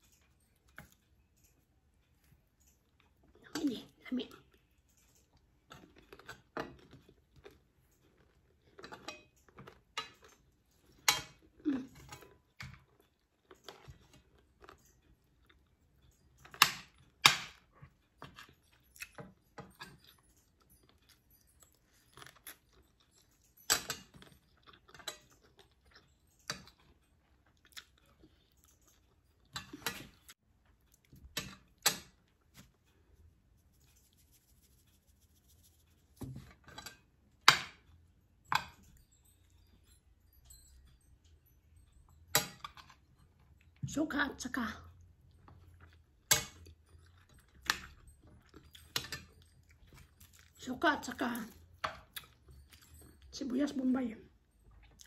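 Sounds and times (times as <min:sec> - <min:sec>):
person chewing: 0:05.1 - 0:15.8, 0:20.0 - 0:35.8, 0:45.3 - 0:50.6, 0:54.8 - 0:55.0
cutlery clinking on ceramic plate: 0:08.7 - 0:12.9, 0:23.2 - 0:25.4, 0:29.5 - 0:30.3, 0:36.2 - 0:39.0, 0:42.1 - 0:43.2, 0:46.3 - 0:50.4.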